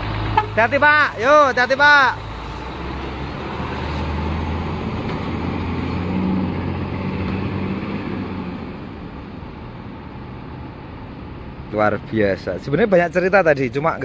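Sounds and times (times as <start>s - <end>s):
bus diesel engine running: 0.0s - 14.0s.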